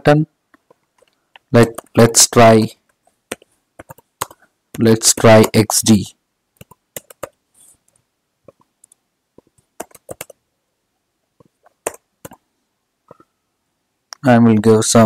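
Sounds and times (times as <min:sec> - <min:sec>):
keyboard and mouse clicking: 0:00.5 - 0:02.1, 0:02.8 - 0:05.7, 0:06.6 - 0:10.4, 0:11.4 - 0:12.4.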